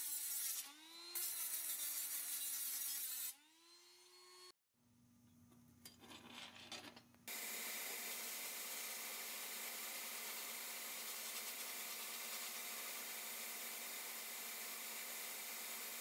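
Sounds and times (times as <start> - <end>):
scraping of metal parts: 5.8 - 7.1.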